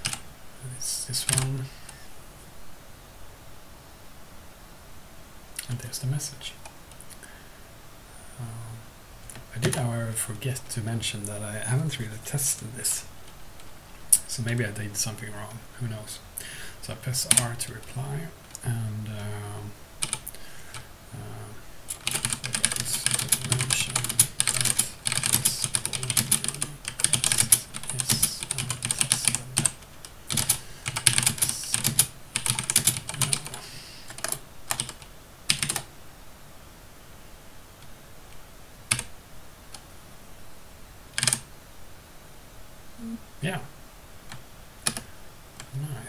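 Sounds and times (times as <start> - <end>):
computer keyboard typing: 0.0 - 0.2, 1.2 - 1.5, 17.3 - 17.5, 20.0 - 20.8, 21.9 - 35.9, 38.9 - 39.1, 41.2 - 41.4, 44.8 - 45.7.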